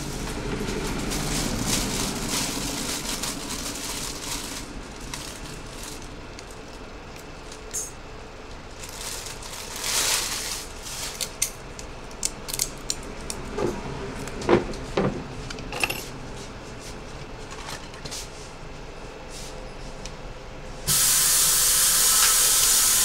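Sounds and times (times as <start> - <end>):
small metal parts clinking: 15.7 - 16.1.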